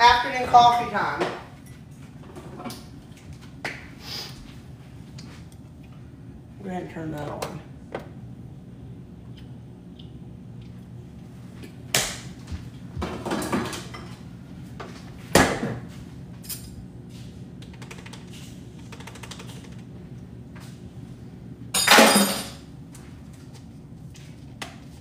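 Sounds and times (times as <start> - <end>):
low steady hum: 0.0 - 25.0
mugs and spoon clattering: 21.8 - 22.6.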